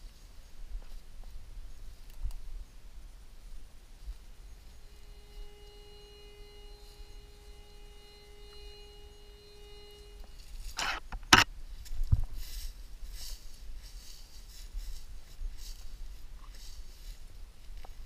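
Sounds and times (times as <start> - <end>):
metal detector humming tone: 4.0 - 11.5
footsteps on dry leaves: 11.6 - 17.8.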